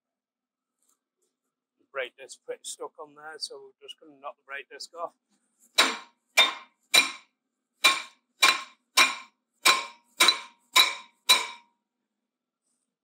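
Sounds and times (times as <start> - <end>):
hammer striking metal: 5.8 - 7.2, 7.8 - 11.6.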